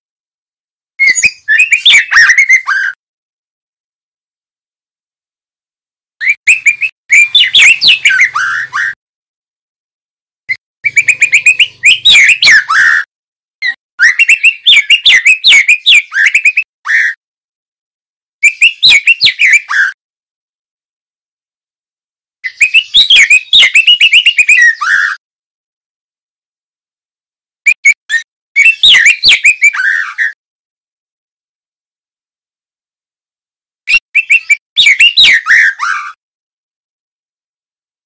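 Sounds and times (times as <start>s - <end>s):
bird singing whistled phrases: 1.0s - 3.0s, 6.2s - 9.0s, 10.8s - 17.2s, 18.4s - 20.0s, 22.4s - 25.2s, 27.7s - 30.4s, 33.9s - 36.2s.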